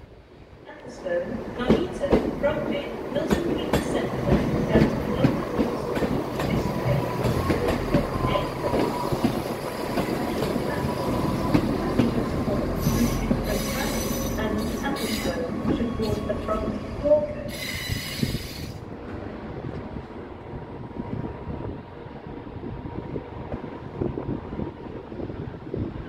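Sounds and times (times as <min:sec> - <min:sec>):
diesel train engines rumbling: 0:00.2 - 0:26.0
thin wheel squeal: 0:17.5 - 0:18.8.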